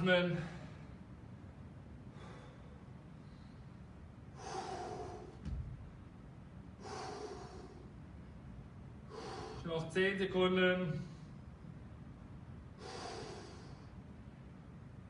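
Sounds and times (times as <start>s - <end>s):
man breathing out: 2.1s - 3.6s, 4.3s - 5.4s, 6.8s - 8.0s, 9.1s - 9.7s, 12.8s - 14.0s
dull thump: 5.4s - 5.9s.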